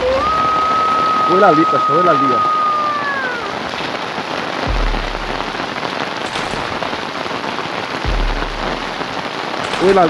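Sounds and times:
heavy rain pouring: 0.0s - 10.0s
brief low rumbles: 4.7s - 5.6s.

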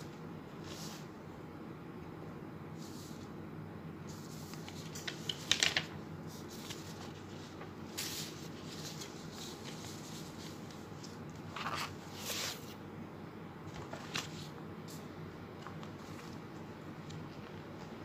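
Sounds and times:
faint steady hum: 0.0s - 18.0s
paper rustling: 4.1s - 12.8s, 13.7s - 14.5s.

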